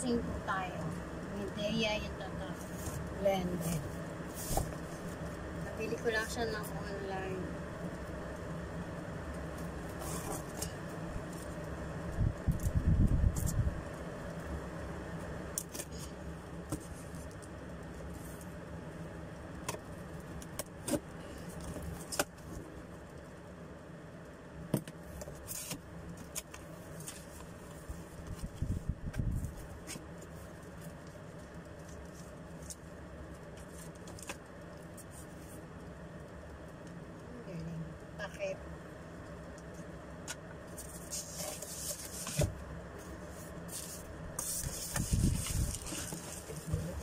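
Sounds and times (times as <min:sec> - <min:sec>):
steady low hum: 0:00.0 - 0:47.0
cardboard and foam rustling: 0:02.4 - 0:06.7, 0:09.5 - 0:11.8, 0:24.8 - 0:32.9, 0:40.6 - 0:47.0.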